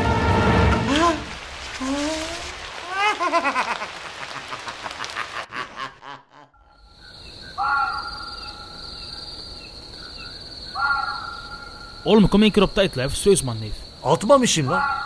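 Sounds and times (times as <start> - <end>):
crickets chirring: 6.6 - 15.0
bird call: 7.5 - 8.8.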